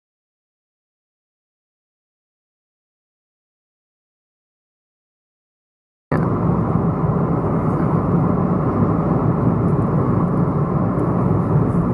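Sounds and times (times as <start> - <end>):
car road and engine rumble: 6.1 - 11.9.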